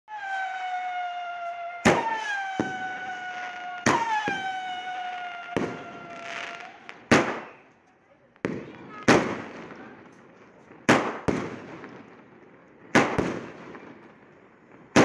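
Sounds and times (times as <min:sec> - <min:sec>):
falling firework whistle: 0:00.1 - 0:07.7
firework bangs: 0:00.1 - 0:07.8, 0:08.4 - 0:15.0
small firework pops: 0:01.8 - 0:04.5, 0:05.2 - 0:15.0.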